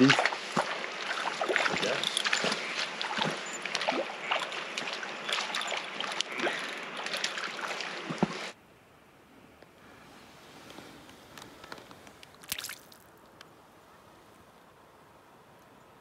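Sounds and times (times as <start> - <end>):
water splashing over rocks: 0.0 - 8.6, 12.3 - 13.3.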